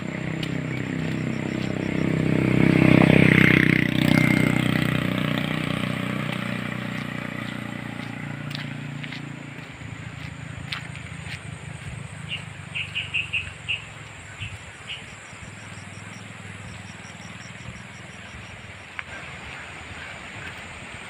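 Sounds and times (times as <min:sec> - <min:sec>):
steady low rumble: 0:00.0 - 0:02.7, 0:03.9 - 0:21.0
bird chirping: 0:11.8 - 0:18.8.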